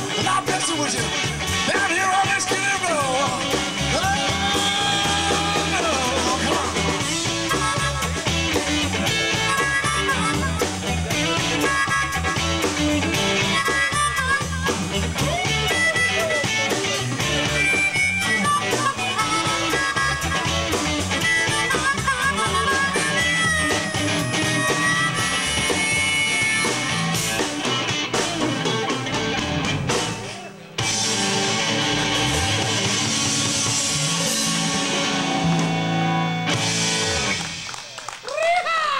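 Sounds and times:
blues harmonica: 0.0s - 37.5s
bass guitar: 0.0s - 38.6s
electric guitar: 0.0s - 38.8s
drums: 0.0s - 38.9s.

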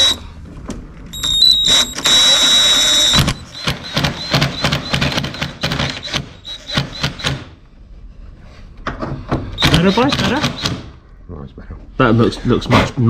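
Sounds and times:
impact wrench rapid knocks: 1.7s - 7.6s, 9.6s - 10.9s.

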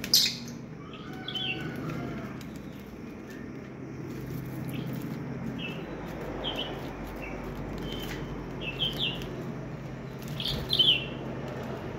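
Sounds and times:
lovebirds chirping: 0.0s - 11.9s.

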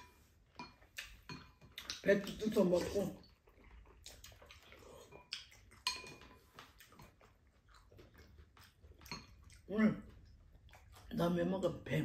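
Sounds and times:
chewing: 0.5s - 11.4s
utensils clinking against bowls: 5.8s - 6.5s.

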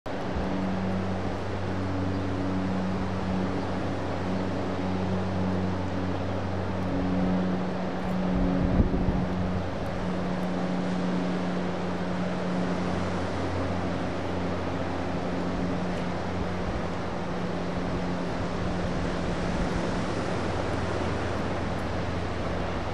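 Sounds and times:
low engine hum: 0.1s - 22.9s
wind noise: 0.2s - 22.9s.

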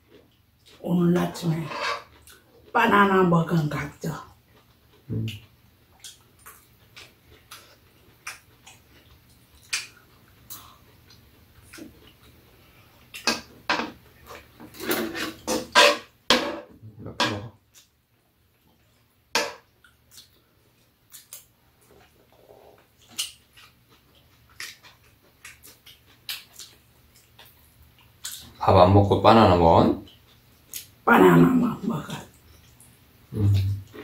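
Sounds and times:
spoons scraping frying pan: 1.5s - 2.1s, 14.7s - 17.4s.

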